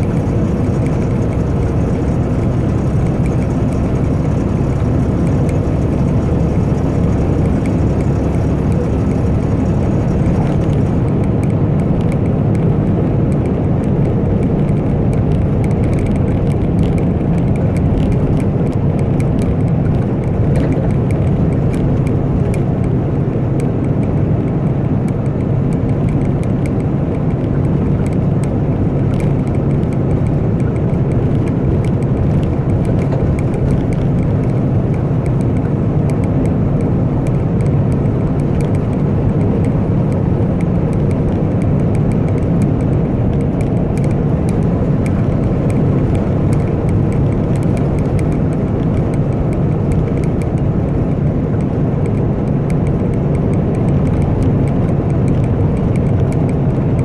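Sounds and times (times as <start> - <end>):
truck diesel engine droning: 0.0 - 57.0.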